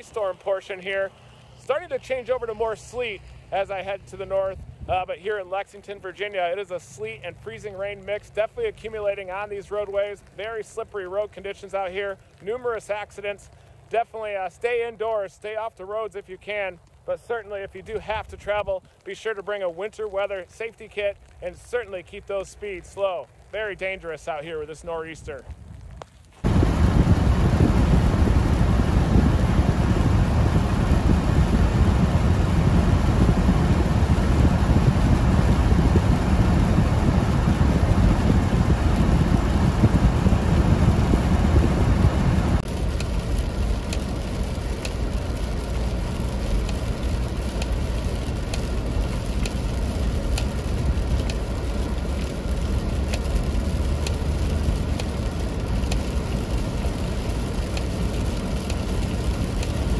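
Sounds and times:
car driving on slushy road: 26.4 - 59.9
faint ticks: 42.6 - 59.9.

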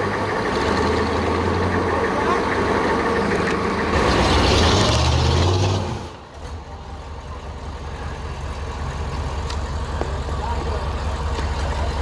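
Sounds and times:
engine idling: 0.0 - 4.4, 6.1 - 12.0
engine at high throttle: 0.0 - 6.2.

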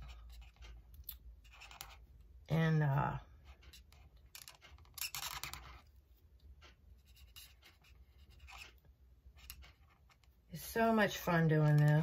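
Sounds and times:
marker scratching on cardstock: 1.4 - 2.0, 7.0 - 8.8.

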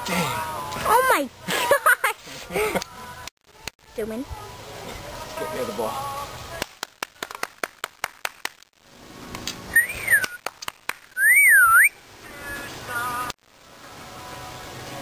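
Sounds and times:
person whistling: 9.8 - 10.4, 11.2 - 12.7.

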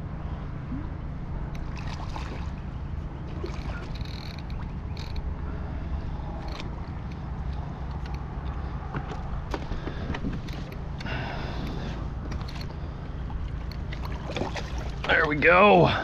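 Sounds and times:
wind and water rumble: 0.0 - 16.0
light clicks and taps: 6.4 - 14.2.

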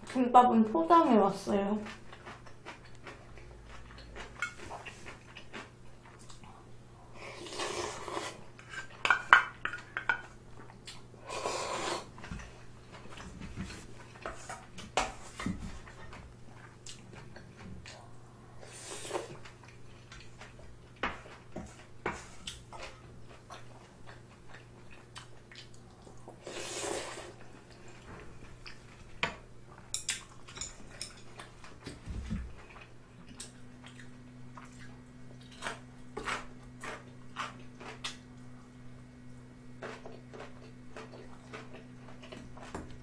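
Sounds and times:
chewing: 1.8 - 9.0, 15.8 - 18.3, 19.1 - 21.9, 22.5 - 29.0, 29.8 - 38.2, 39.8 - 43.0
slurping: 7.2 - 8.5, 11.2 - 12.2, 26.2 - 27.8.

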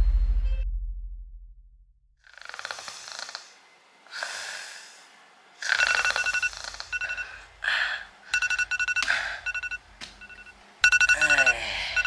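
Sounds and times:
person snoring: 2.3 - 5.0
phone vibrating against bed: 5.6 - 7.4, 8.3 - 12.0
phone alarm beeping: 5.7 - 7.4, 8.3 - 12.0.

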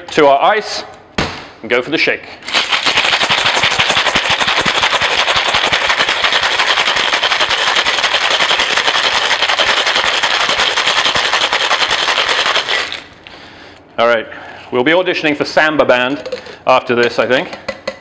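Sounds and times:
ice rattling in cocktail shaker: 2.5 - 13.1.

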